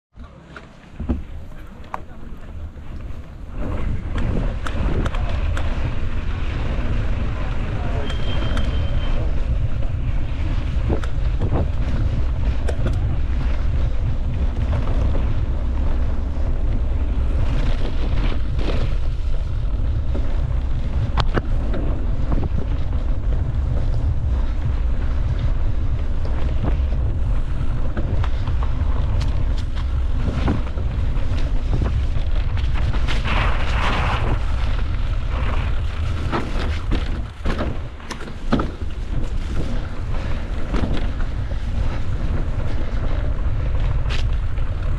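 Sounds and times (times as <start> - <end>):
wind buffeting microphone: 0.7 - 44.9.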